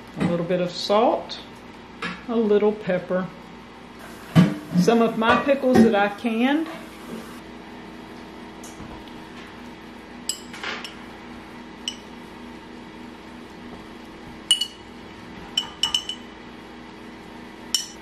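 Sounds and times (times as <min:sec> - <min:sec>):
metal spoon clinking on glass: 0:11.9 - 0:12.1, 0:14.5 - 0:14.8, 0:15.6 - 0:16.3, 0:17.8 - 0:18.0.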